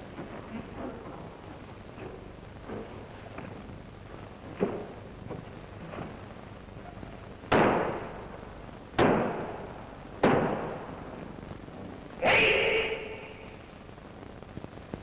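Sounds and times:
sharp cracks ringing in a hall: 0:07.4 - 0:11.4, 0:12.2 - 0:13.8
loud kiai shout: 0:12.2 - 0:13.5.

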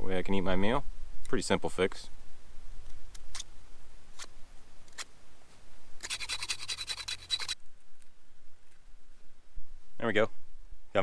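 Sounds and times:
knife scraping wooden stick: 0:06.0 - 0:07.6.

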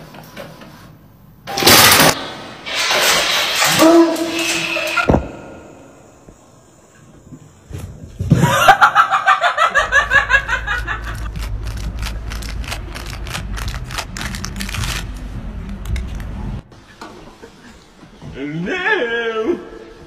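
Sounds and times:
person laughing: 0:08.4 - 0:11.4
sharp crackles: 0:11.3 - 0:15.3.

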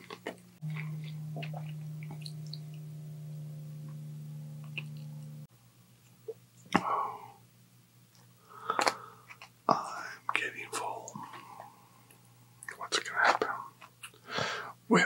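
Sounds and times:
steady low hum: 0:00.4 - 0:05.8.

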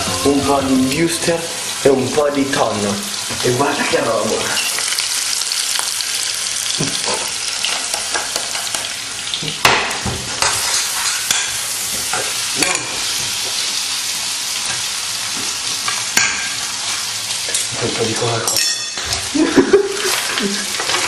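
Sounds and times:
food sizzling in oil: 0:00.0 - 0:21.0
utensil stirring food: 0:10.3 - 0:21.0.

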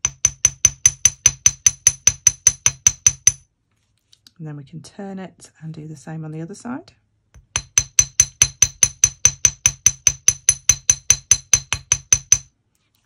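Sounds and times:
small hammer tapping metal: 0:00.0 - 0:03.5, 0:07.4 - 0:12.5.

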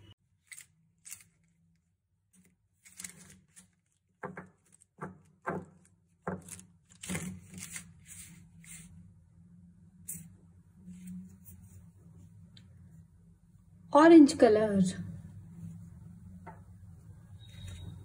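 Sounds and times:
pens rustling on paper: 0:00.3 - 0:09.0.

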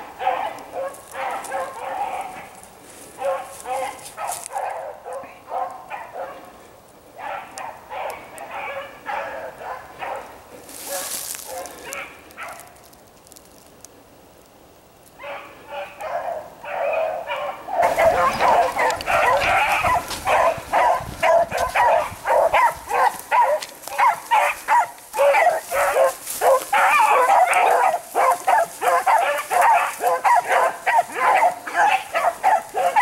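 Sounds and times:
pack of dogs baying: 0:00.0 - 0:06.6, 0:07.2 - 0:12.7, 0:15.2 - 0:33.0.

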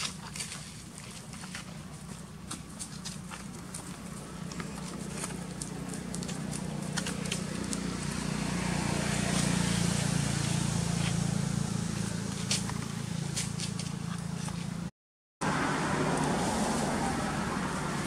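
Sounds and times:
light clicks and scuffs: 0:00.0 - 0:07.9, 0:12.0 - 0:14.9
vehicle engine running: 0:00.0 - 0:18.0.

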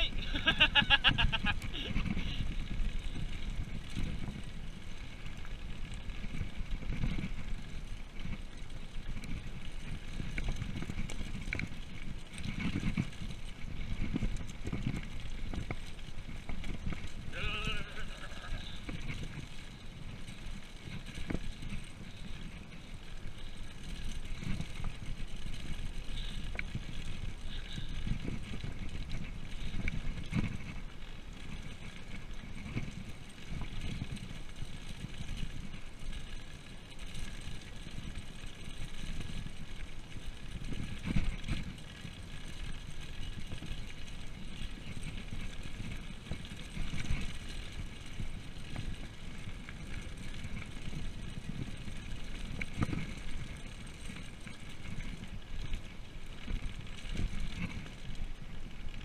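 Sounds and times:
wind buffeting microphone: 0:00.0 - 0:05.0
bike tyres rumbling: 0:00.0 - 0:59.0.

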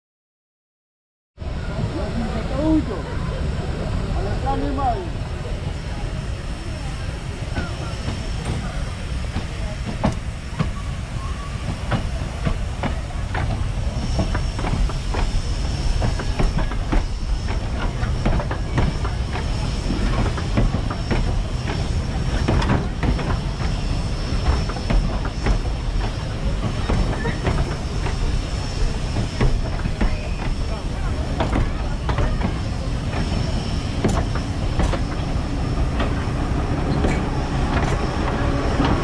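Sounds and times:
diesel locomotive rumble: 0:01.4 - 0:39.0
train wheels clicking over rail joints: 0:07.5 - 0:10.8, 0:11.6 - 0:39.0.

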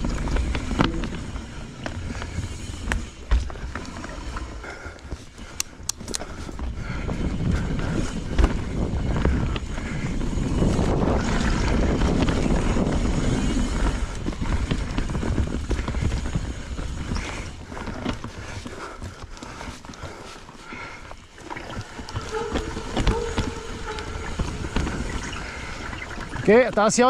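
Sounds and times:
bike knocks and rattles: 0:00.0 - 0:19.9, 0:21.1 - 0:27.0
bike tyres on dirt: 0:00.0 - 0:27.0
wind on microphone: 0:05.9 - 0:18.1, 0:21.5 - 0:26.5.

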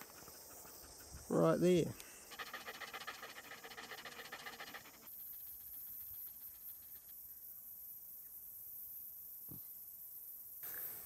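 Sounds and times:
dog panting rapidly: 0:00.0 - 0:01.6, 0:02.3 - 0:05.1
faint high hiss: 0:01.3 - 0:11.0.

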